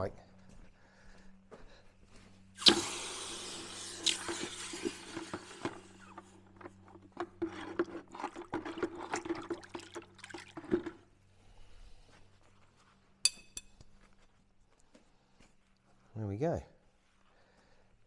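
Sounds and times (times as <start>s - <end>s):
hot metal hissing in water: 2.6s - 6.2s
water sloshing: 3.6s - 11.1s.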